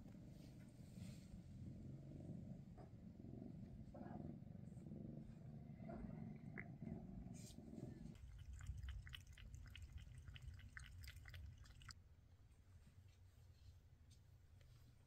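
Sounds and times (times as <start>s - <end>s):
kitten lapping water from bowl: 8.1s - 12.0s.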